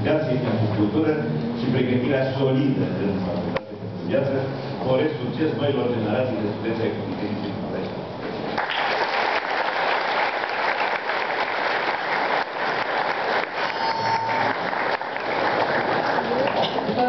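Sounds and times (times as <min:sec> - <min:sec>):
audience applauding: 0:08.5 - 0:17.0.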